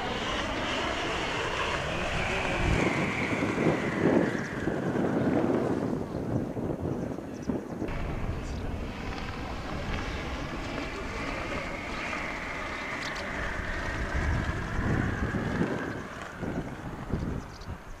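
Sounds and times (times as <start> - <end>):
wind buffeting microphone: 0.0 - 18.0
faint high drone: 7.8 - 18.0.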